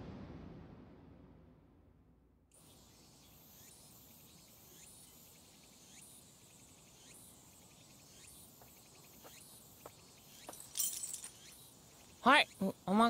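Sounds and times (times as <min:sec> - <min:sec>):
insect chirring: 0:02.6 - 0:13.0.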